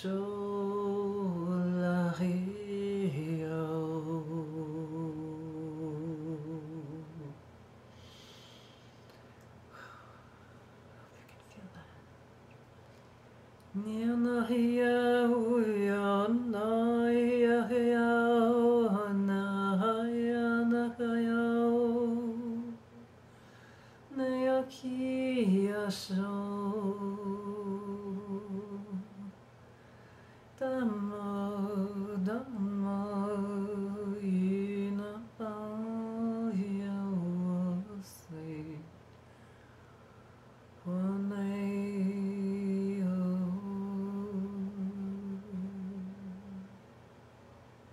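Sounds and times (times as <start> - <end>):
woman humming: 3.0 - 7.4, 25.5 - 29.4, 40.9 - 46.8.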